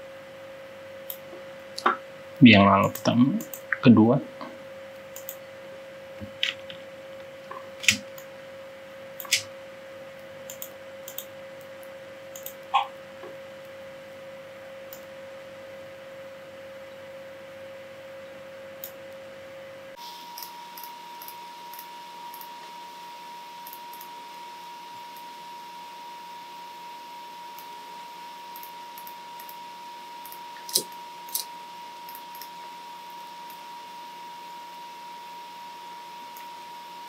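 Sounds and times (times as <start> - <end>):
computer mouse clicks: 2.8 - 3.8, 5.1 - 5.4, 9.2 - 9.5, 10.5 - 12.9, 20.4 - 22.5, 28.6 - 29.6.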